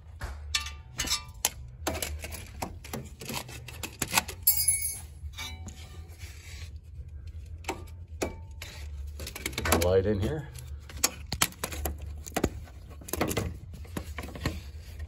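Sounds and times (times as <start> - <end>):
tools and parts clinking: 0.4 - 6.0.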